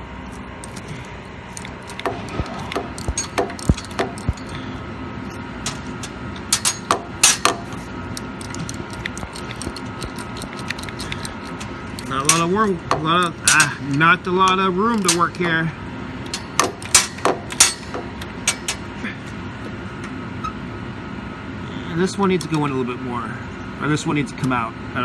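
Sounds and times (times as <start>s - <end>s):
ratchet wrench clicking: 1.5s - 4.6s, 6.6s - 12.5s.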